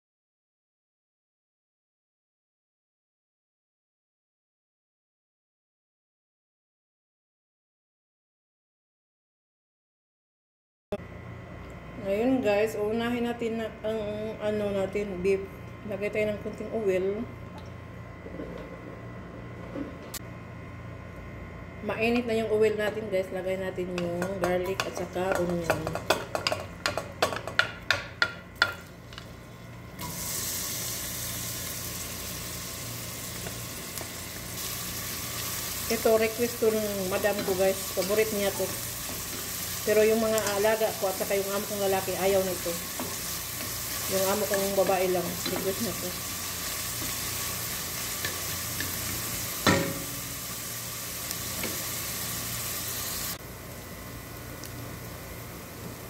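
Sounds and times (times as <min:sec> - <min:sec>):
onion sizzling in hot oil: 0:30.0 - 0:56.0.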